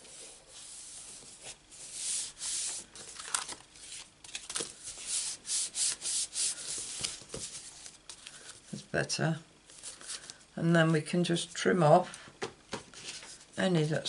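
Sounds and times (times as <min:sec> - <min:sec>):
hands rubbing paper card: 0:00.5 - 0:08.3.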